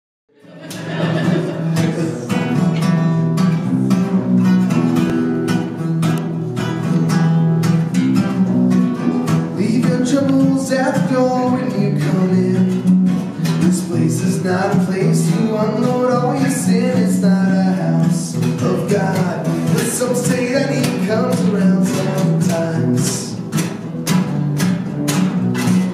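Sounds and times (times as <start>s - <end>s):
acoustic guitars playing: 0.4s - 25.9s
person singing: 9.5s - 23.4s.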